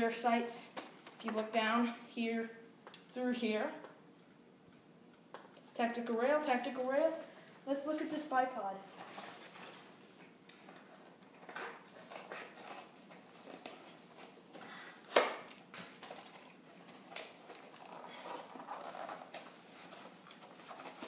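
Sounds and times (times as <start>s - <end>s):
cardboard rustling and scraping: 7.8s - 14.4s, 15.8s - 21.0s.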